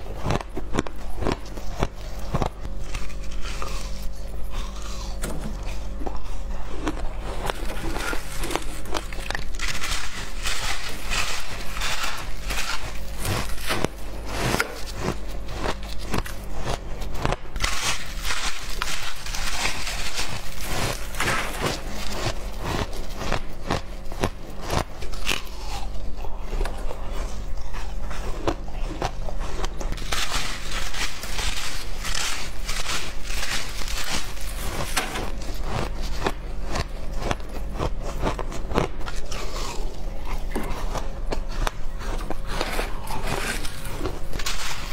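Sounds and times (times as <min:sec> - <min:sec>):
low steady hum: 0:00.0 - 0:44.9
shaved ice crunching: 0:06.8 - 0:26.0, 0:29.9 - 0:40.5, 0:42.0 - 0:44.9.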